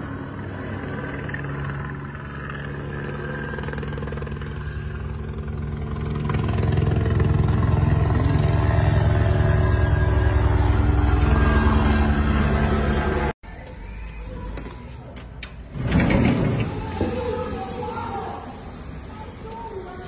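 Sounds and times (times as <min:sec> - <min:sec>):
helicopter rotor chopping: 0:00.0 - 0:13.4
helicopter turbine: 0:00.0 - 0:13.4.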